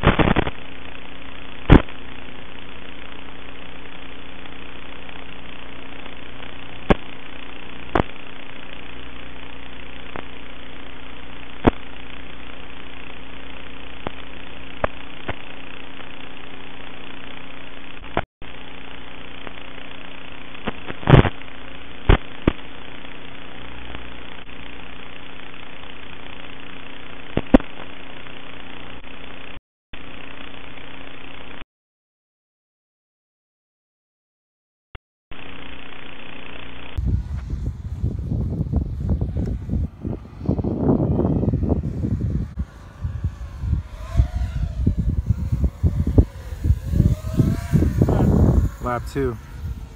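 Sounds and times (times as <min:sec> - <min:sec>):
sharp pops: 0:00.0 - 0:00.6
buzzing hiss and hum: 0:00.0 - 0:31.6, 0:35.4 - 0:49.9.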